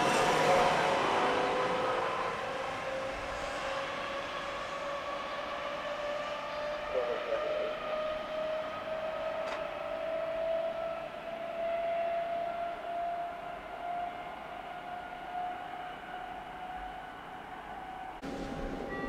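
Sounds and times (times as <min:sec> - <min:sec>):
electric train whine rising: 0:00.0 - 0:19.0.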